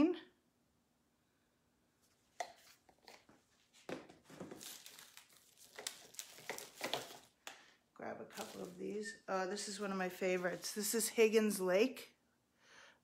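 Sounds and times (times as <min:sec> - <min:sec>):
packing material rustling: 0:02.5 - 0:07.5, 0:08.3 - 0:09.0.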